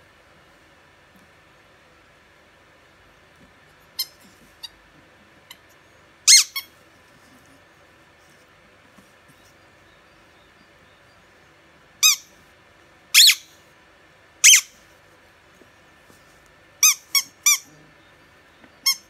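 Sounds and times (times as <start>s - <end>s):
squeaky toy squeaking: 4.0s - 4.7s, 6.3s - 6.7s, 12.0s - 12.3s, 13.2s - 13.5s, 14.4s - 14.8s, 16.8s - 17.8s.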